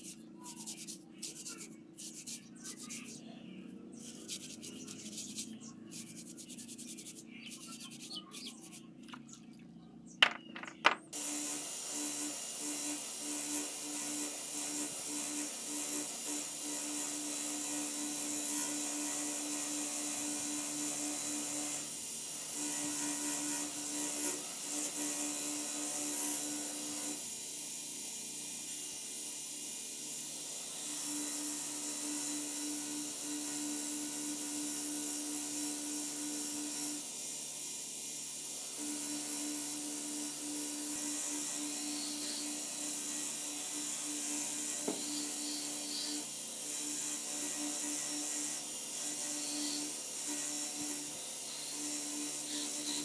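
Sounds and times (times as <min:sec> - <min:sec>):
scrubbing plastic in soapy water: 0:00.0 - 0:03.2, 0:04.0 - 0:09.2.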